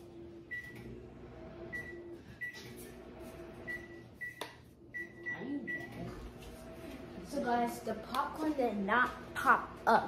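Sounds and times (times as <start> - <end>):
microwave hum: 0.0 - 10.0
microwave beeps: 0.5 - 1.0, 1.7 - 2.9, 3.6 - 6.1.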